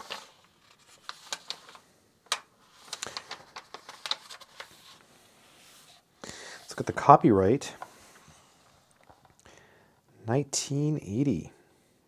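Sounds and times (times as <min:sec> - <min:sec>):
book pages turning: 0:00.0 - 0:09.4.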